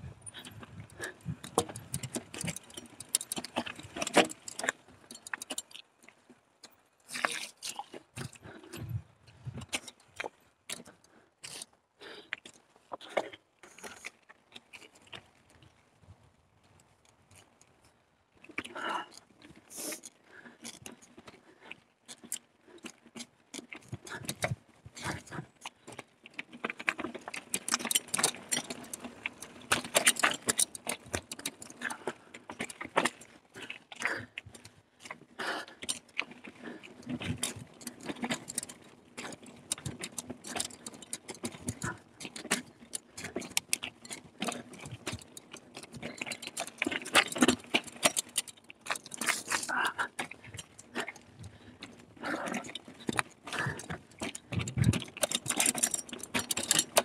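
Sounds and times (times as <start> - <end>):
tyre noise: 0.0 - 5.7, 22.9 - 57.0
bike rattling over rough trail: 0.0 - 57.0.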